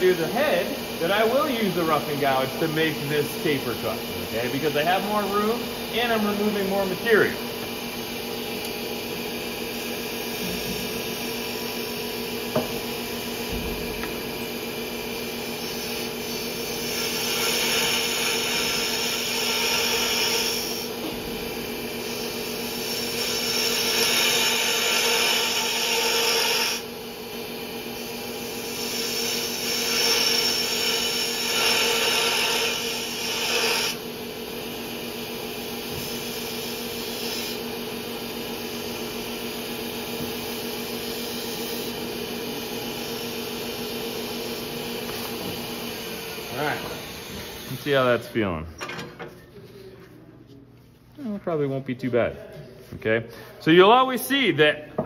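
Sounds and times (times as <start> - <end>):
lathe humming: 0.0 - 48.2.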